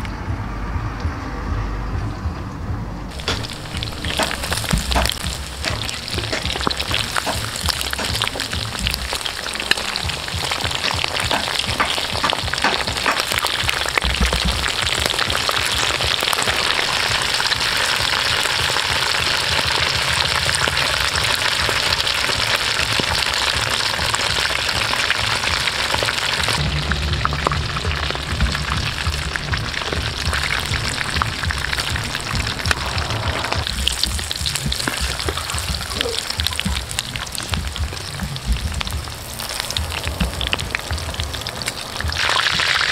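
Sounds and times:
hot oil sizzling and crackling: 3.1 - 42.9
tongs knocking: 3.2 - 10.0, 10.7 - 13.5.

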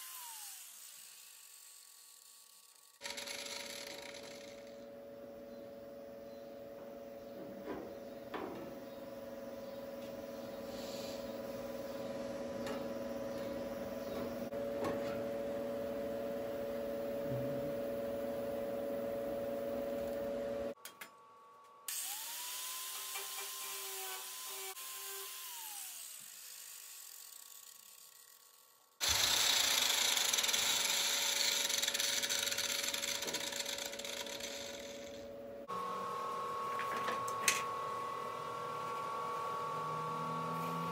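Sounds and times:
metal cutting or grinding: 0.0 - 4.8, 23.0 - 35.3
power tool spinning up: 0.0 - 4.9, 21.9 - 40.9
steady hum with held tone: 2.2 - 40.9.

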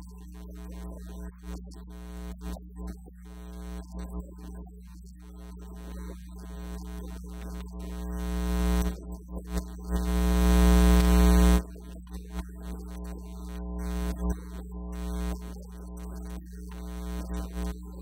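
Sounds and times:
electrical mains hum: 0.0 - 18.0.

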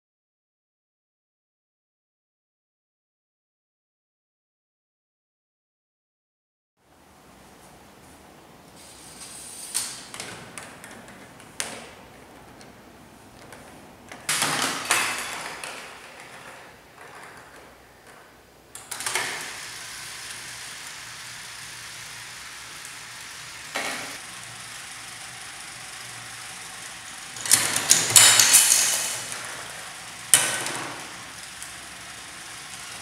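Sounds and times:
steady motor whir: 19.0 - 33.0.

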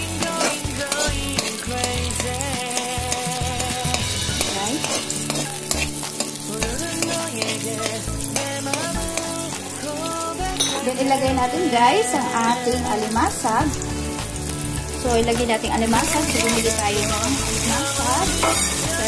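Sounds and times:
metal spatula scraping pot: 0.0 - 9.3, 16.0 - 19.0
onion and ginger sizzling in oil: 0.0 - 19.0.

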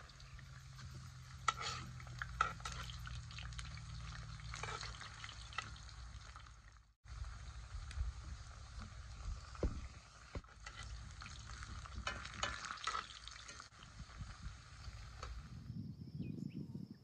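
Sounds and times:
oil sizzling in a skillet: 0.0 - 15.7
metal spoon scraping a pan: 0.6 - 5.8, 10.4 - 13.7.

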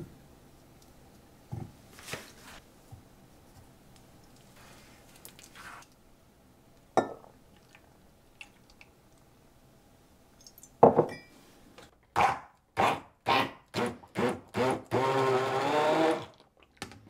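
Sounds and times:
glass jug clinking: 7.0 - 7.3, 10.8 - 11.3
stick blender bursts: 12.8 - 16.3.

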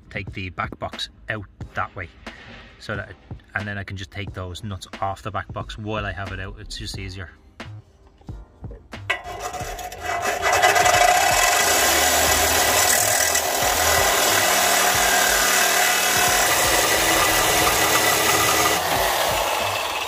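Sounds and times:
reciprocating saw cutting metal: 9.0 - 20.0.

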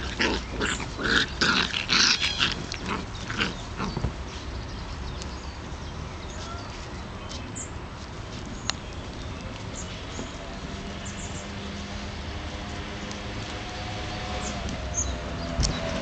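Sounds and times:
puppy noises: 0.0 - 4.1.

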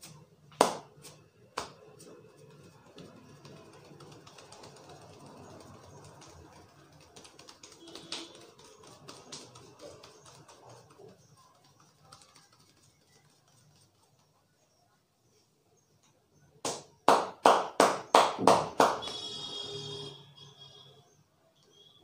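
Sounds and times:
hands tapping on head: 0.6 - 1.8, 2.4 - 14.2.

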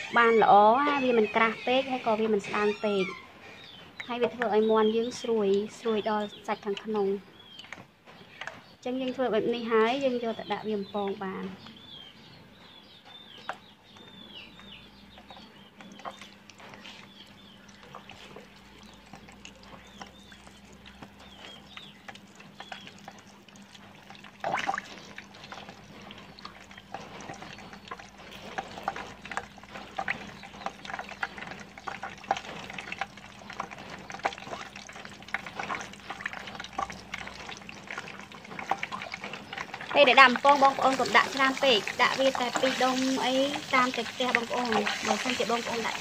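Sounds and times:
small birds chirping: 0.0 - 46.0
chicken frying in hot oil: 13.0 - 46.0.

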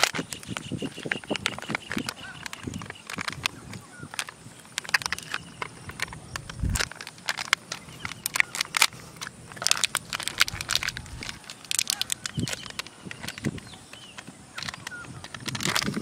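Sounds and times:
plastic sachet crinkling and tearing: 0.0 - 16.0.

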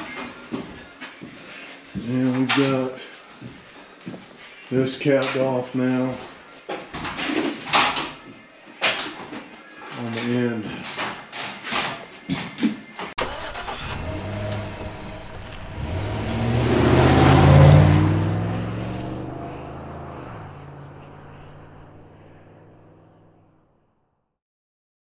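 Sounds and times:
vehicle engine driving past: 13.5 - 23.5.

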